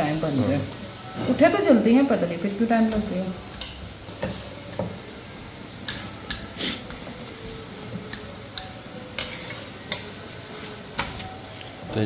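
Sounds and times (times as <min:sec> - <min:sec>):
flatbread sizzling in oil: 0:00.0 - 0:12.0
utensil clicking against pan: 0:02.9 - 0:04.4.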